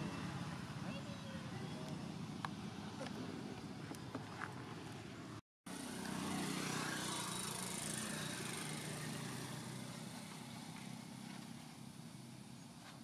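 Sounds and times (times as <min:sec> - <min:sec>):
motor engine running: 0:05.7 - 0:13.0.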